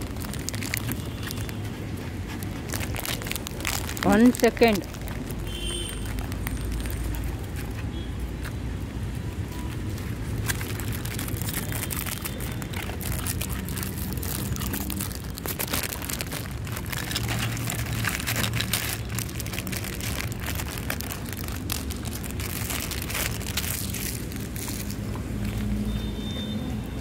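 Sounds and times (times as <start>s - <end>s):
plastic packet crinkling: 0.0s - 1.6s, 2.3s - 7.5s, 9.9s - 25.2s.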